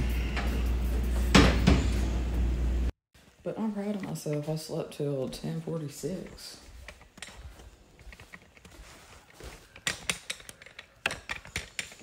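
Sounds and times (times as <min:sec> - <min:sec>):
sharp clicks and knocks: 0:09.6 - 0:12.0.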